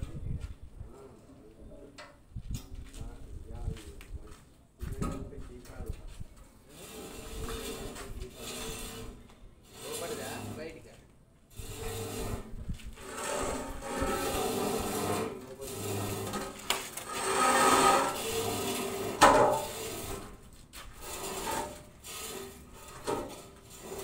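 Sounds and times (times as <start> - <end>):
steel stand scraping on concrete: 6.6 - 24.0.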